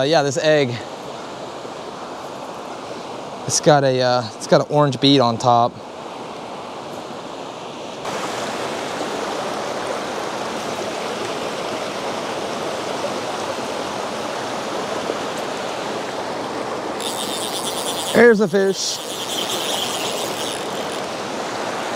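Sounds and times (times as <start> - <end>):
river water rushing: 4.4 - 21.9.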